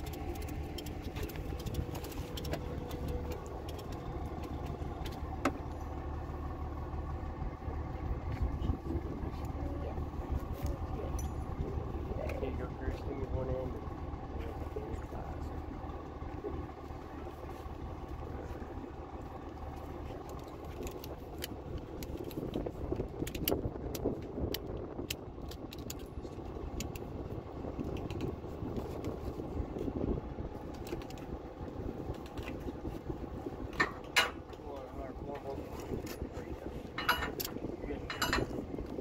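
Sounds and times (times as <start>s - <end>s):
steady low hum: 0.0s - 39.0s
straps and metal hardware clattering: 36.9s - 38.7s.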